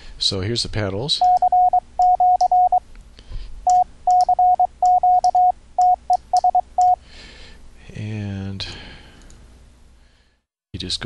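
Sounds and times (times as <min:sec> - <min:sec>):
morse code tone: 0:01.2 - 0:02.8, 0:03.7 - 0:07.0.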